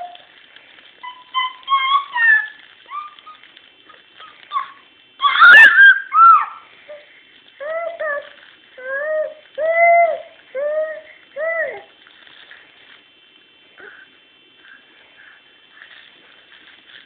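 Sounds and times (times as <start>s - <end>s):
baby squealing: 1.0s - 3.4s, 4.2s - 6.6s
baby babbling and cooing: 6.9s - 11.9s.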